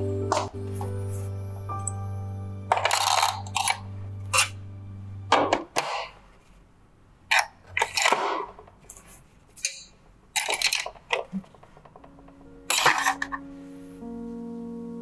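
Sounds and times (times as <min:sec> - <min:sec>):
metal tools clattering into plastic: 0:09.6 - 0:13.4.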